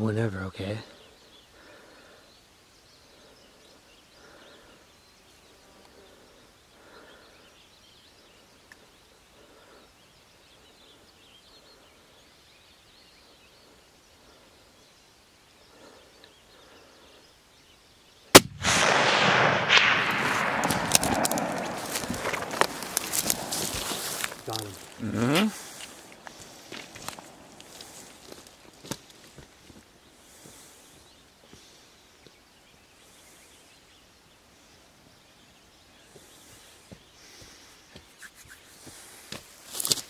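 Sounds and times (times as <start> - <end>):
rifle shot: 18.3 - 23.5
sharp clicks: 18.4 - 23.4
rustling and handling noise: 20.8 - 29.4.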